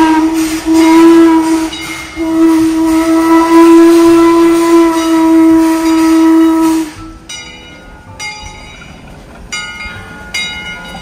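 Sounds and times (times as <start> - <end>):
steam locomotive whistle blast: 0.0 - 7.3.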